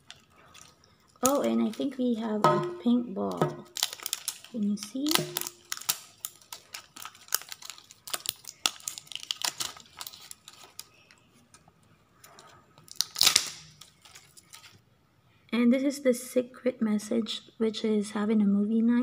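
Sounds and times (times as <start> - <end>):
plastic wrapping crinkling: 0.0 - 14.8.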